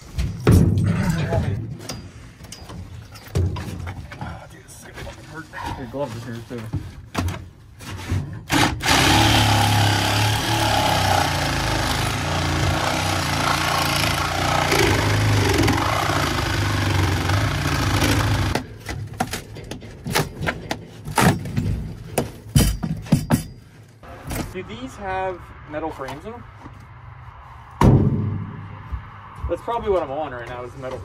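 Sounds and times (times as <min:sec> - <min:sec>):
knocks and thumps: 0:00.0 - 0:02.0
reciprocating saw cutting: 0:08.5 - 0:18.6.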